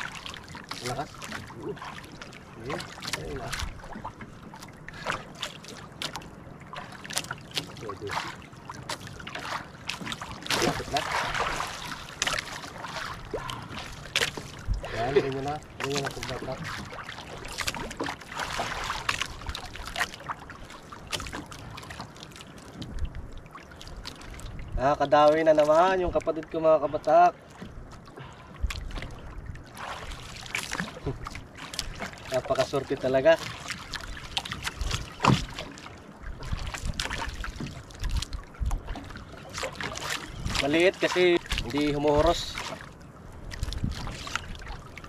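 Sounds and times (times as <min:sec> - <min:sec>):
water slapping against boat hull: 0:00.0 - 0:45.0
wind on microphone: 0:22.8 - 0:23.5, 0:36.2 - 0:39.4, 0:40.0 - 0:40.8, 0:43.3 - 0:45.0.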